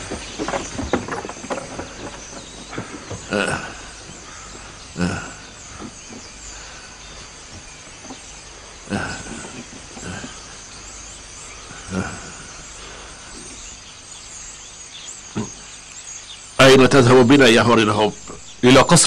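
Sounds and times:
faint bird chirps: 0.0 - 19.0
steady hiss: 0.0 - 19.0.

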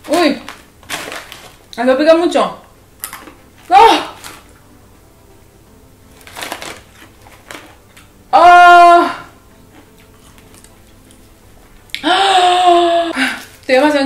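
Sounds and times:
woman crying out: 8.3 - 9.3, 12.0 - 13.4.

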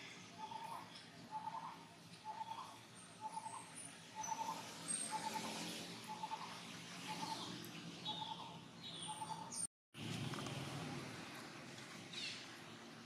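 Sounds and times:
birds chirping and whistling: 0.3 - 9.7.

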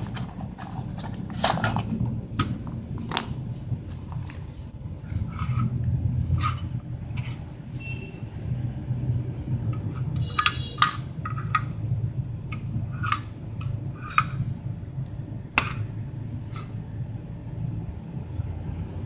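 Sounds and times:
metal stove parts clicking and knocking: 6.3 - 7.4, 9.7 - 11.8, 12.4 - 14.5, 15.5 - 16.8.

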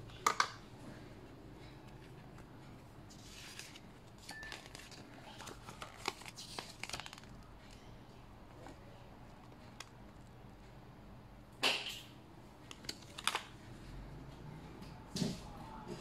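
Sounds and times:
paper rustling and crackling: 3.1 - 7.9.

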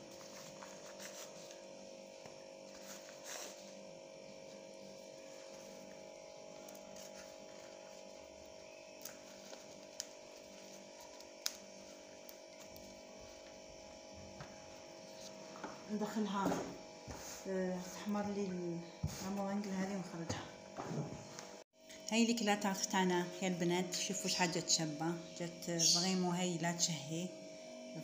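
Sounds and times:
steady electrical hum: 0.0 - 28.0.

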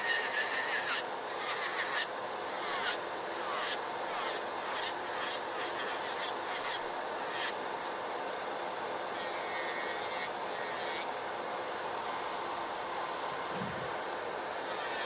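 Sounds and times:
electric nail drill filing: 0.0 - 7.6, 9.2 - 11.1, 14.5 - 15.0
nail dust collector fan: 0.0 - 15.0.

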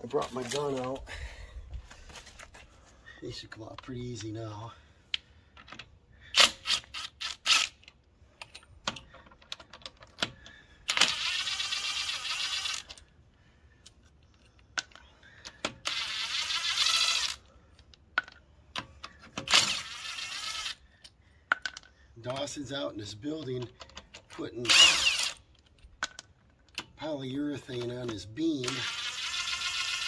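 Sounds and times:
impact wrench running: 28.6 - 30.0.

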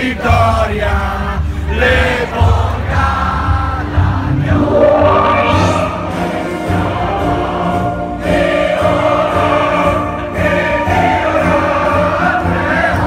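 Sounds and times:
crowd singing along: 0.0 - 13.0
live concert music: 0.1 - 13.0
steady low beat: 4.0 - 7.2.

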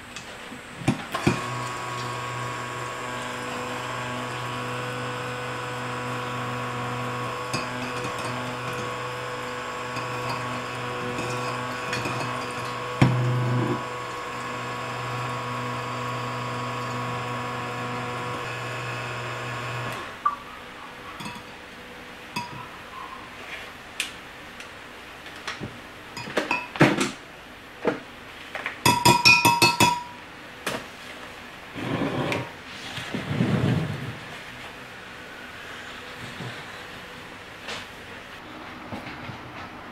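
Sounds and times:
stick blender motor hum: 1.1 - 20.2
utensils clinking against glass jug: 7.1 - 13.8, 21.2 - 21.6, 22.4 - 22.7, 26.2 - 26.8, 28.8 - 30.2.

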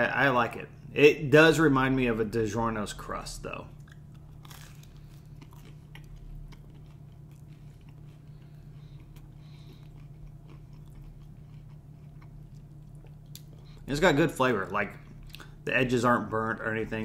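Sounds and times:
steady low hum: 0.0 - 17.0
person chewing crunchy pizza: 3.5 - 15.6.

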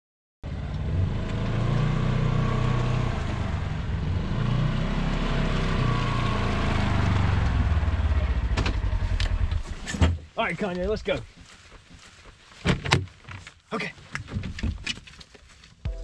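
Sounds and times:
truck engine running: 5.9 - 9.8.

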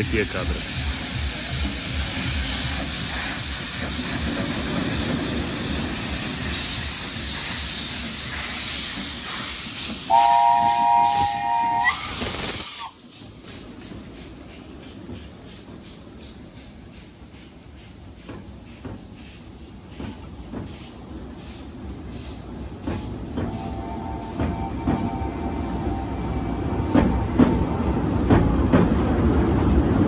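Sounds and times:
steam hissing from locomotive: 0.0 - 30.0
chime steam whistle: 10.1 - 13.0, 23.5 - 26.6.

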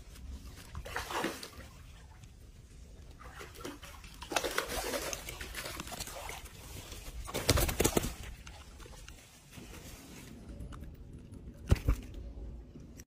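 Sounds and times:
fish thrashing and splashing in net: 3.2 - 8.7.

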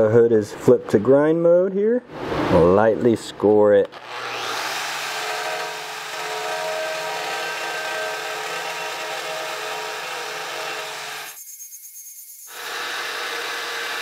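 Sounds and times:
angle grinder whining on steel: 3.9 - 14.0.

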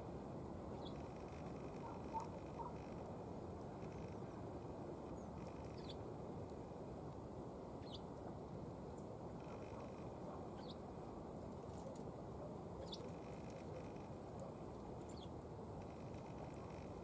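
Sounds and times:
sparrows chirping: 0.8 - 1.1, 1.8 - 2.8, 5.2 - 6.0, 7.8 - 8.1, 10.6 - 10.8, 12.8 - 13.3, 15.0 - 15.3.

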